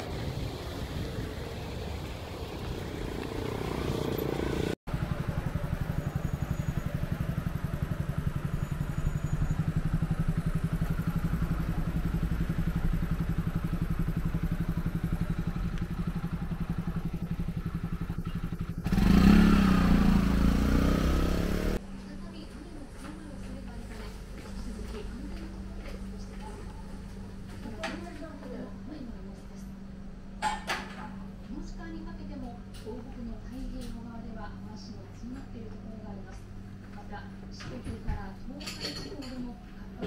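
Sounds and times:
street noise: 0:00.0 - 0:40.0
low mechanical hum: 0:21.8 - 0:40.0.

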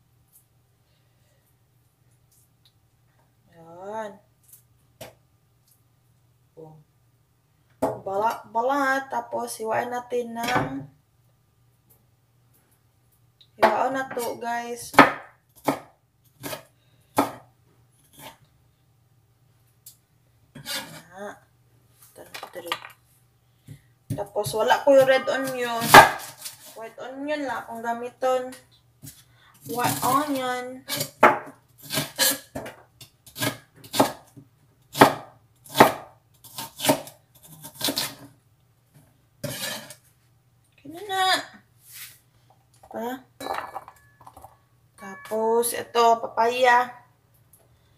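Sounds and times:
knife chopping on wooden board: 0:14.9 - 0:16.6, 0:34.9 - 0:37.1.

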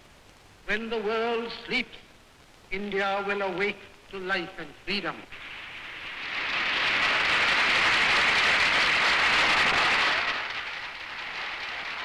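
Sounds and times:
crowd applause: 0:05.8 - 0:12.0.

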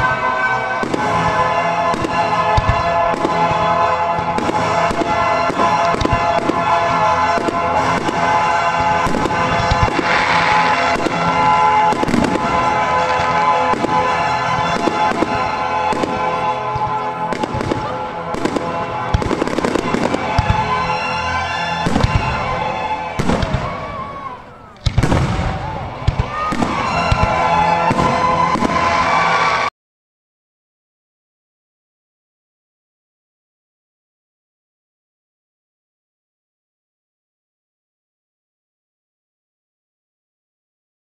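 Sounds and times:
background music with held tones: 0:00.0 - 0:24.4
fireworks bangs: 0:00.0 - 0:29.7.

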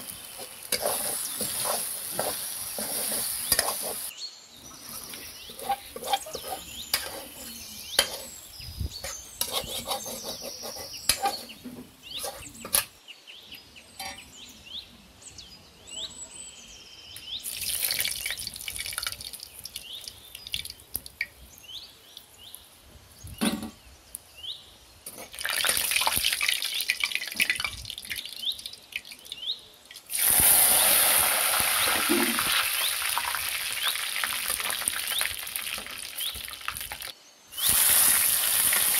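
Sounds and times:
metal spoon scraping a pan: 0:00.0 - 0:04.1, 0:04.8 - 0:12.9, 0:14.0 - 0:14.2
chillies sizzling in oil: 0:00.0 - 0:12.9, 0:17.2 - 0:22.7, 0:25.0 - 0:38.9.

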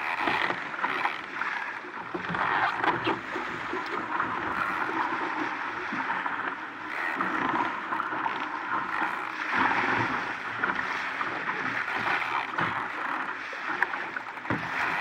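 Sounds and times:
water rushing past a hull: 0:00.0 - 0:15.0.

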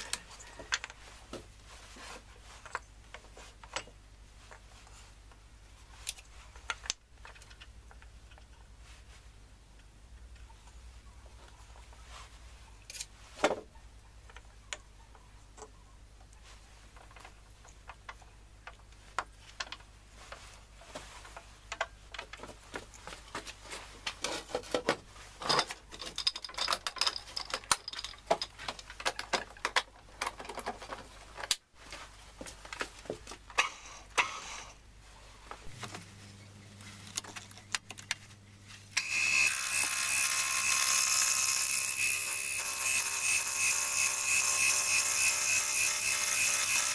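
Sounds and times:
clinks and knocks of steel tooling: 0:25.4 - 0:30.9
wood turning on lathe: 0:39.0 - 0:46.9.

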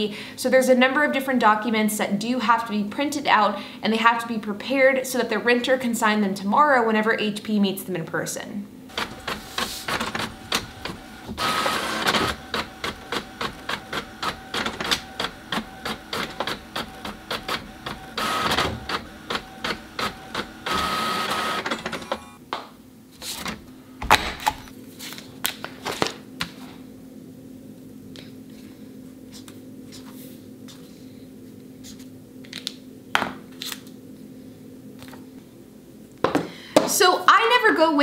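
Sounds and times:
printer clicking and whining: 0:08.9 - 0:22.4.

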